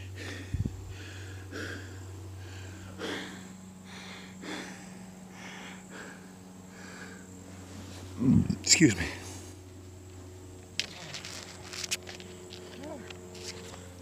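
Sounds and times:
person breathing heavily: 0.0 - 9.5.

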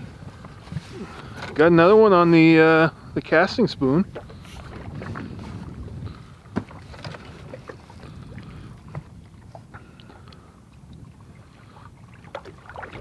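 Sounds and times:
water lapping against boat: 0.0 - 13.0
wind rumbling on microphone: 0.0 - 13.0.

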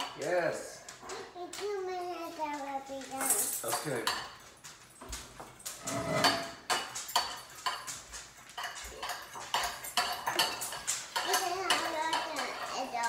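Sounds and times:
utensil scraping against bowl: 5.8 - 7.8.

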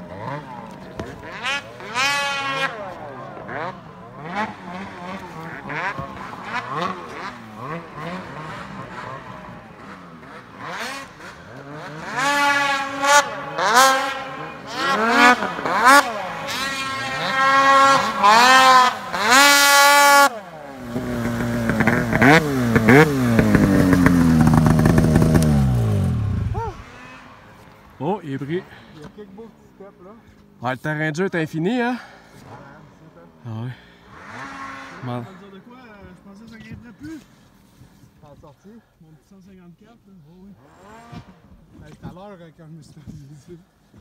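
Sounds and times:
snowmobile engine running: 0.0 - 27.2
snowmobile engines revving: 0.0 - 44.0.

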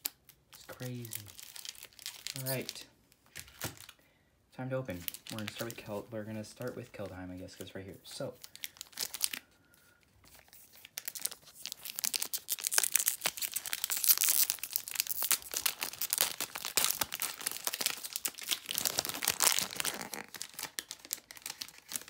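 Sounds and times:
foil wrapper tearing and crinkling: 0.0 - 4.0, 8.4 - 9.5, 10.3 - 22.0.

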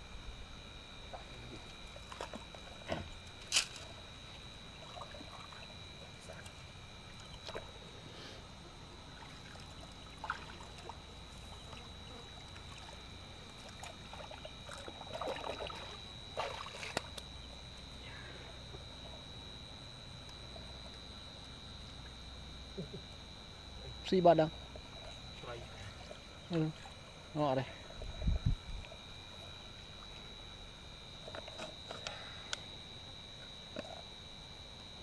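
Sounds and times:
hands splashing in muddy water: 13.7 - 17.3.

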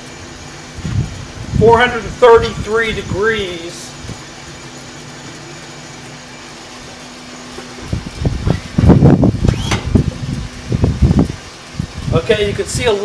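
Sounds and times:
exhaust blower whooshing hum: 0.0 - 13.0
loud irregular rumbling bursts: 0.0 - 13.0.

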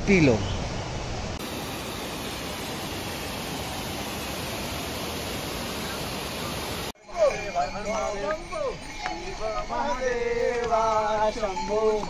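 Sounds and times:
waterfall rushing: 1.4 - 6.9.

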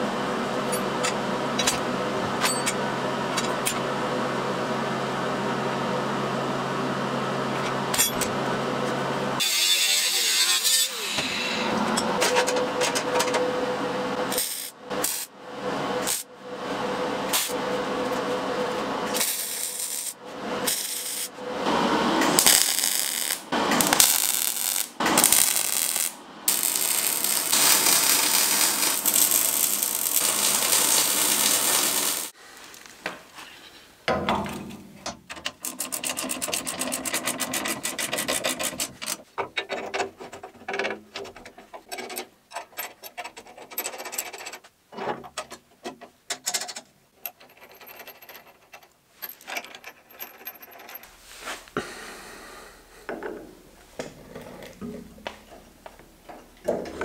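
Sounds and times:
welding crackle: 19.2 - 21.3, 22.3 - 33.1
metal scraping and grinding: 25.0 - 32.4.

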